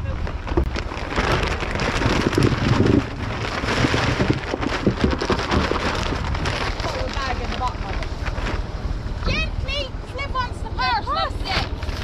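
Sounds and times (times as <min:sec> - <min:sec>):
plastic sack rustling: 0:00.0 - 0:08.8.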